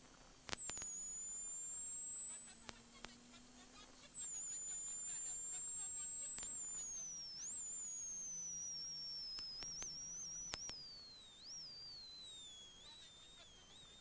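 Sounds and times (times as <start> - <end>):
sharp clicks: 0.2 - 4.4, 5.3 - 8.3, 9.2 - 11.6.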